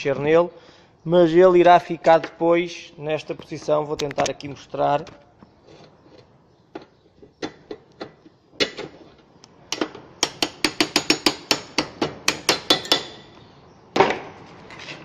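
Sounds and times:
hammer tapping on metal: 9.7 - 13.3.

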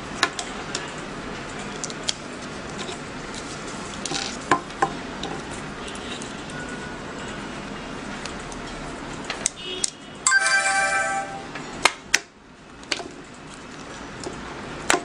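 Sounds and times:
electronic chime: 10.3 - 11.6.

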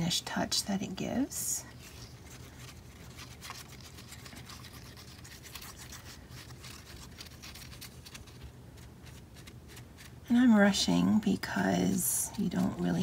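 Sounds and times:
glue tip scrubbing on paper: 1.7 - 10.2.

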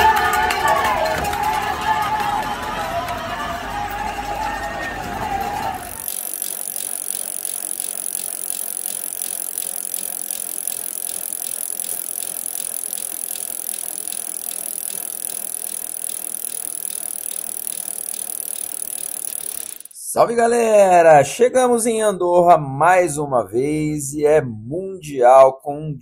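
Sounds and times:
bicycle freewheel ticking: 1.3 - 20.1.

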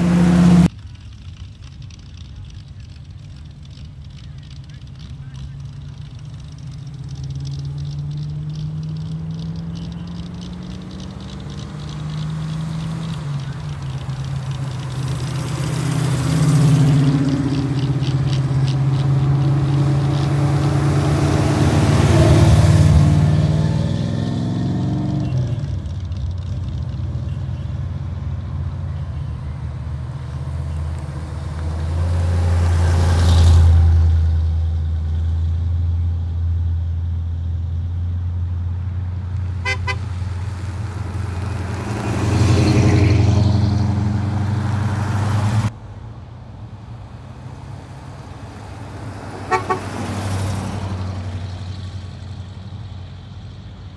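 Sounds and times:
car engines passing: 0.0 - 53.9
car horn toot: 39.6 - 40.1, 49.4 - 50.1.

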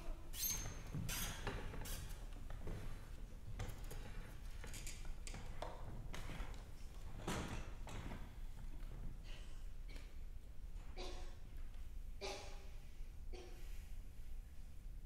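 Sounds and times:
high squeak: 0.3 - 2.2.

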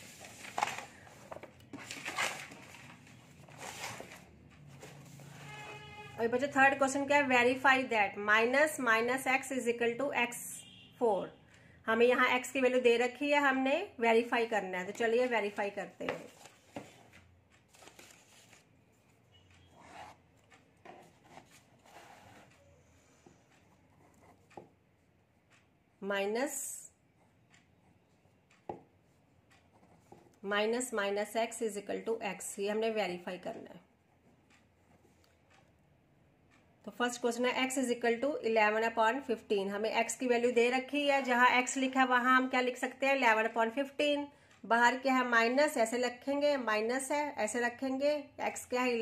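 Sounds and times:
paper and book pages rustling: 0.0 - 5.6, 15.5 - 19.2, 20.8 - 22.6.

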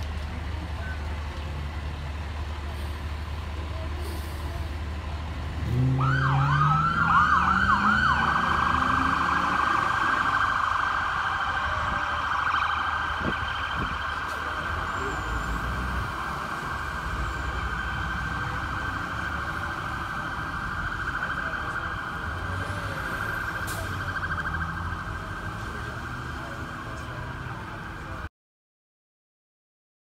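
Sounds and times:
vehicle engine rumbling: 0.0 - 28.3
police siren: 5.6 - 28.3.

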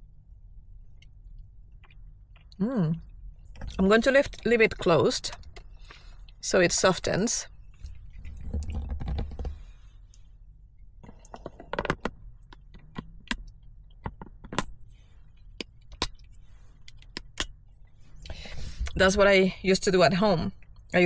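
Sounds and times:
low rumble: 2.6 - 11.1.

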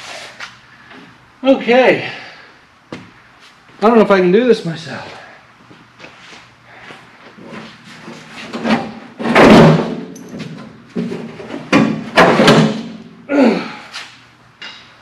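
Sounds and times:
sheet metal clunking and rattling: 8.5 - 13.0
loud metal bang: 9.2 - 10.1.

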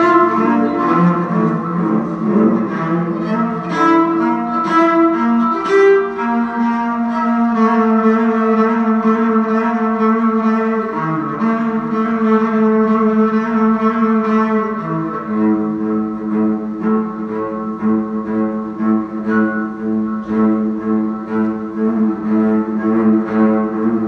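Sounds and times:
solo cello bowed: 0.0 - 24.0.

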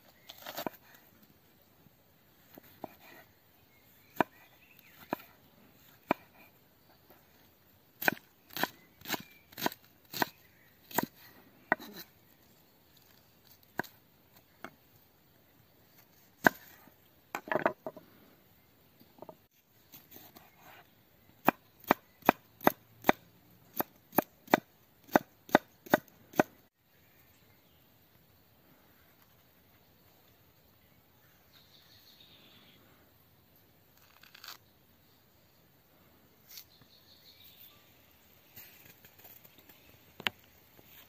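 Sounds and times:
knife chopping on wooden board: 21.4 - 26.5.

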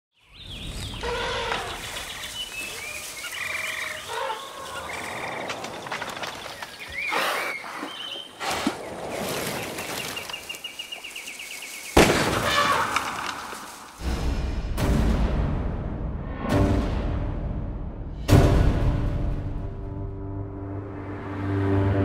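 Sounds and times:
bird chirps and calls: 6.6 - 8.4.

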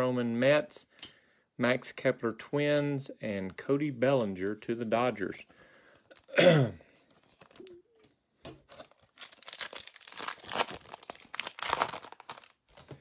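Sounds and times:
foil wrapper tearing and crinkling: 8.7 - 12.9.

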